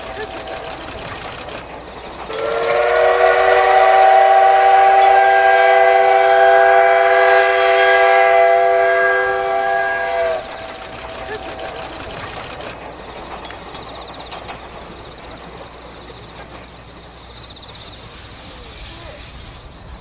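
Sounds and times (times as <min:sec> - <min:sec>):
steam locomotive whistle blowing: 0:00.0 - 0:12.8.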